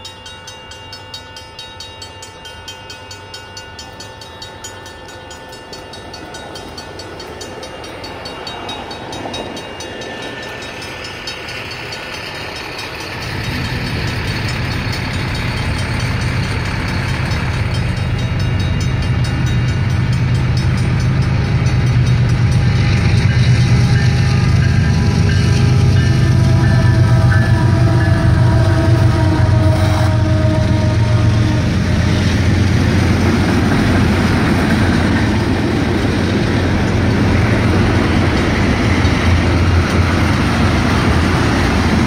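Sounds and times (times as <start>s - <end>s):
crossing bells ringing: 0.0s - 42.0s
locomotive rumble: 3.5s - 42.0s.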